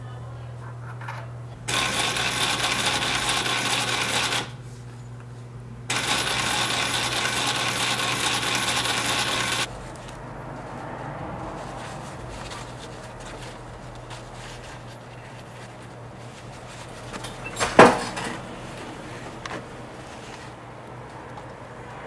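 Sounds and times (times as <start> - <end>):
sewing machine needle clatter: 1.7 - 4.5, 5.9 - 9.7
material rustled by hand: 9.7 - 21.6.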